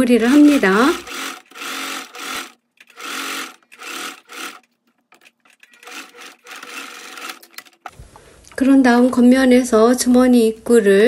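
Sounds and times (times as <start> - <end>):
sewing machine stitching: 0.0 - 7.9.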